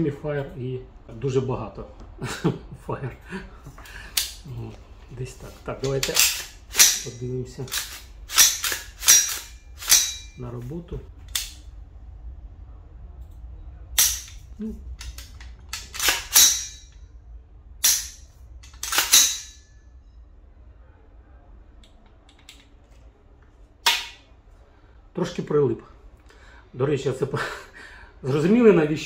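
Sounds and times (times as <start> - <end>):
rifle action metallic clicks: 5.8 - 10.3, 11.2 - 11.6, 15.0 - 16.8, 17.8 - 19.6.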